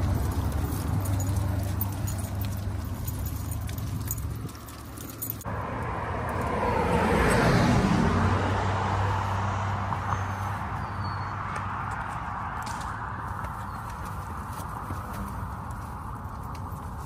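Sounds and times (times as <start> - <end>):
dog tags jingling: 0.0 - 5.5
van driving past: 0.0 - 11.4.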